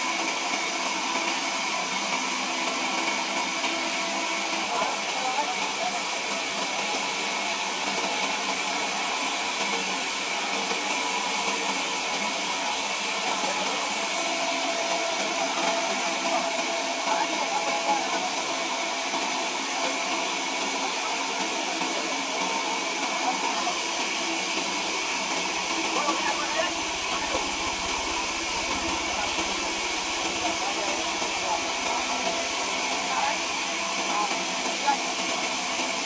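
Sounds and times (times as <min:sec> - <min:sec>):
sawmill machinery whirring: 0:00.0 - 0:36.0.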